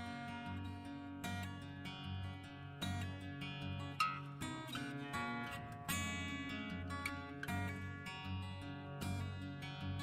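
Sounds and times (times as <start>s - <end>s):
acoustic guitar plucked notes: 0.0s - 10.0s.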